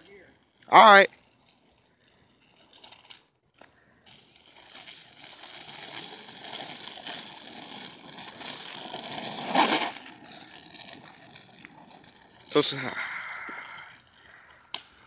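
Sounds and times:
skateboard wheels rolling on asphalt: 0.0 - 15.0
skateboard scraping rush: 4.1 - 15.0.

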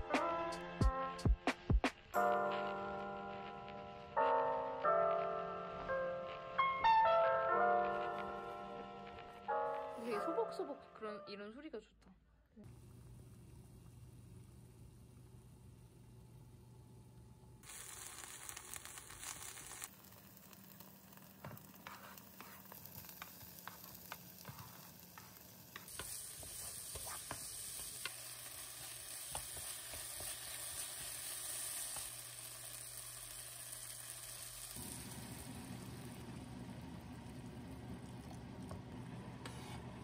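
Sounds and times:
vegetables sizzling in a pan: 2.2 - 6.5, 17.6 - 38.0
spatula scraping a pan: 21.6 - 28.0, 39.4 - 39.9.

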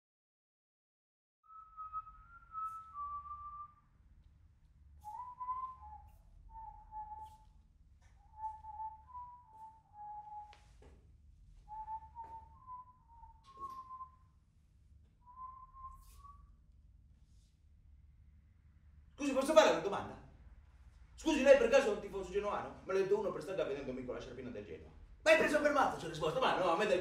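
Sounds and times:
person whistling a tune: 1.5 - 3.8, 5.0 - 7.5, 8.2 - 10.6, 11.7 - 14.3, 15.3 - 16.5.

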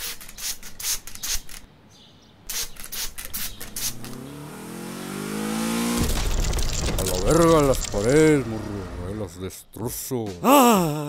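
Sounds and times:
spray bottle spritzing: 0.0 - 1.6, 2.5 - 4.1
engine revving: 3.4 - 9.3.

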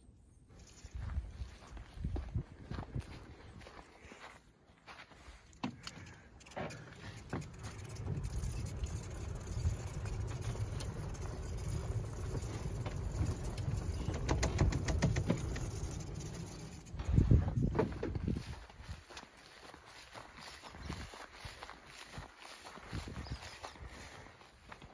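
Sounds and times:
footsteps on sandy grass: 0.5 - 13.9, 15.4 - 24.9
wind rumble on microphone: 0.7 - 3.7, 7.2 - 19.2, 20.4 - 24.2.

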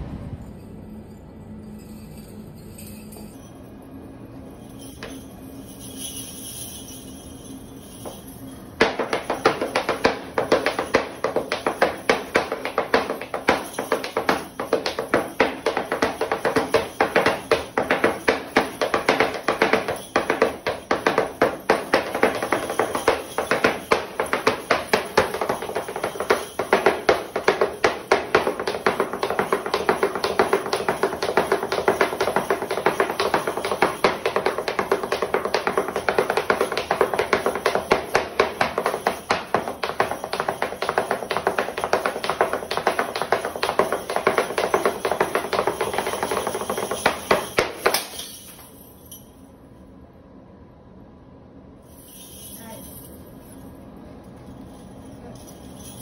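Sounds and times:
flamenco dance taps: 8.8 - 48.4.

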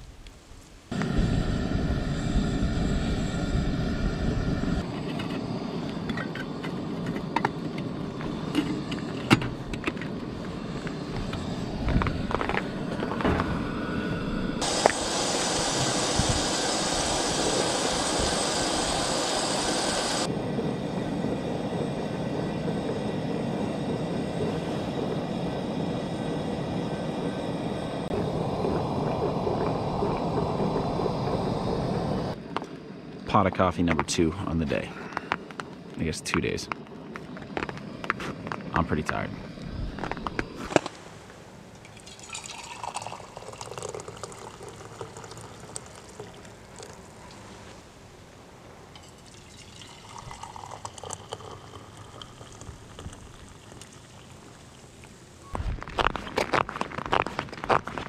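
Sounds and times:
steady rushing noise: 5.5 - 41.6
loud hiss: 13.8 - 20.4.

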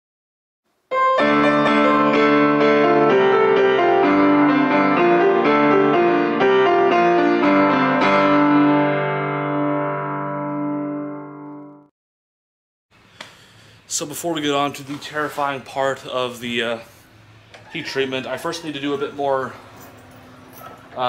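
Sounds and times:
keyboard tune: 0.9 - 11.9.

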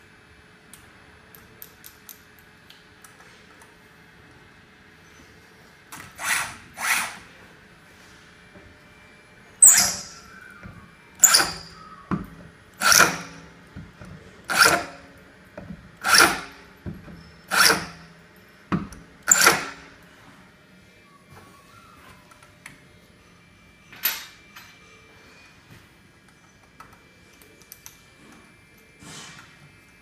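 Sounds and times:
tapping arm cutting metal: 9.6 - 10.2, 11.2 - 18.1, 18.7 - 19.9.

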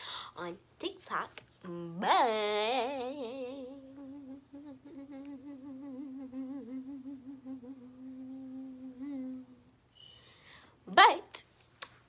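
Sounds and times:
girl humming: 3.5 - 9.6.

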